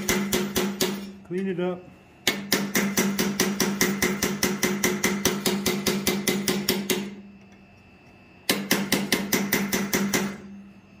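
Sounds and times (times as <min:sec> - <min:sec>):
hammer striking punch on steel: 0:00.0 - 0:01.2, 0:02.2 - 0:07.2, 0:08.5 - 0:10.5
faint steady hum: 0:00.0 - 0:11.0.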